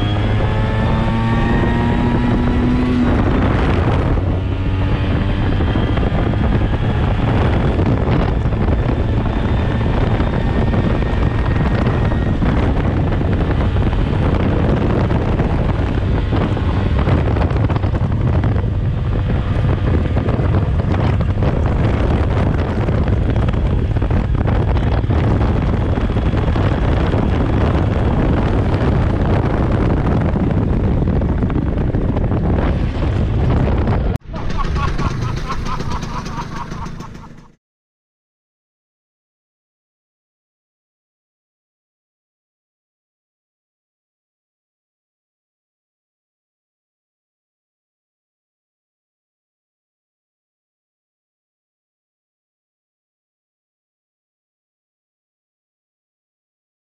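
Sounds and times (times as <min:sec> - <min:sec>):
scooter engine accelerating: 0:00.0 - 0:37.6
wind noise on microphone: 0:00.0 - 0:37.6.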